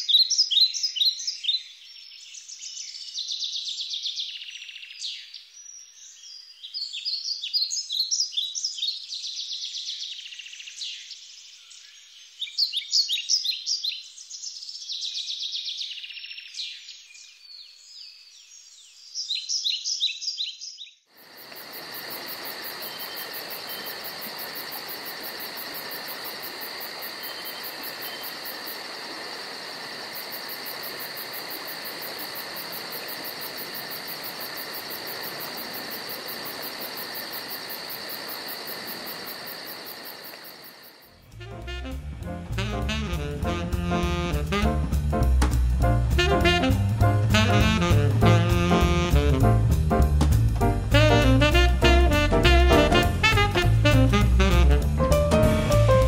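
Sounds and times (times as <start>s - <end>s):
songbird chirping: 0.0s - 49.4s
insects chorus: 21.1s - 41.8s.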